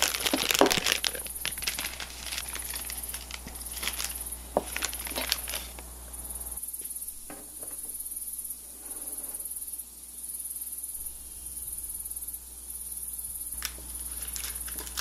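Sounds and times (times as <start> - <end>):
plastic bag crinkling: 0.0 - 5.9, 13.6 - 15.0.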